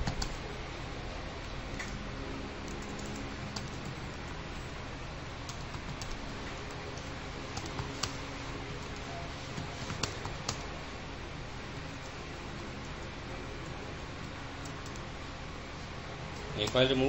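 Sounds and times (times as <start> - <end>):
computer keyboard typing: 0.0 - 0.4, 2.6 - 4.3, 5.4 - 10.7, 11.7 - 15.1, 16.4 - 17.0
background hiss and low hum: 0.0 - 17.0.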